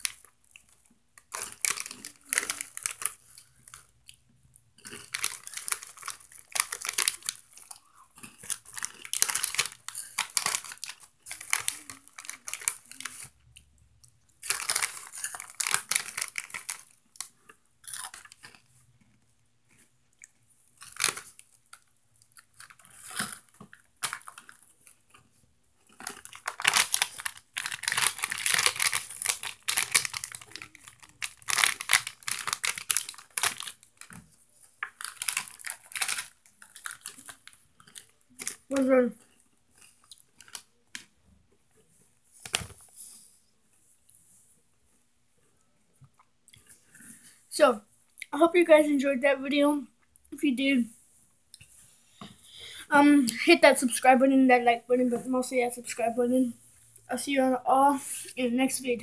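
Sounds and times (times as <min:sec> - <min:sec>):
plastic snack bag crinkling: 0:00.0 - 0:04.2, 0:04.8 - 0:41.1, 0:42.3 - 0:43.2
crunchy chewing: 0:04.8 - 0:13.7, 0:14.3 - 0:41.1.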